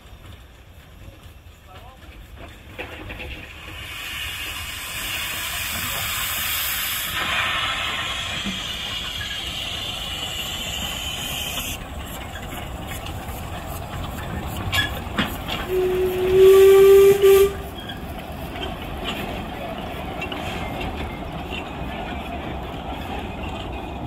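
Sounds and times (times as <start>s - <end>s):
train wagons rumbling on rails: 0.0s - 24.0s
steam locomotive whistle blast: 15.6s - 17.8s.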